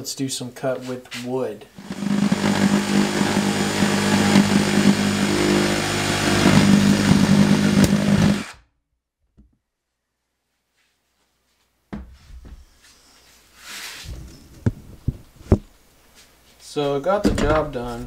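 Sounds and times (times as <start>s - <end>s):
reciprocating saw cutting wood: 1.8s - 8.6s.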